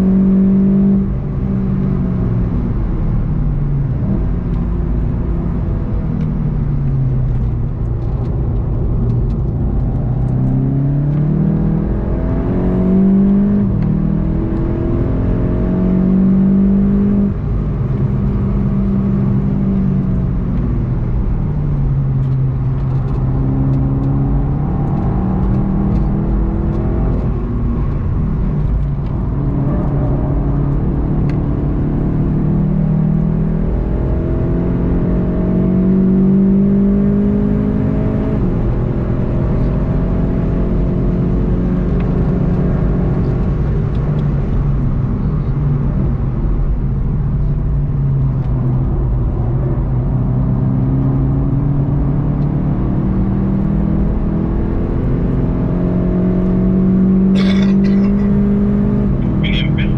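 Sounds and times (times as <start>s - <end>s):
car engine revving through gears: 0.0s - 59.9s
tyre and road rumble: 2.5s - 14.9s, 17.4s - 31.6s, 56.1s - 59.9s.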